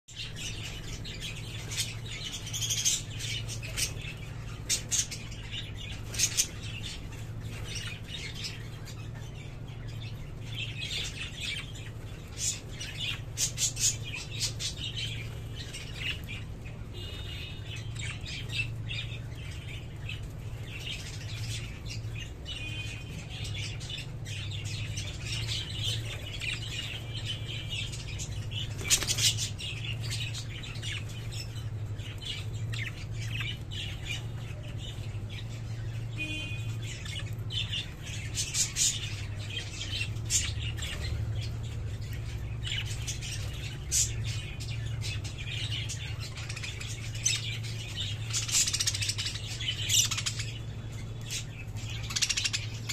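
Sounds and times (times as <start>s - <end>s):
budgerigars chattering: 42.6s - 52.9s.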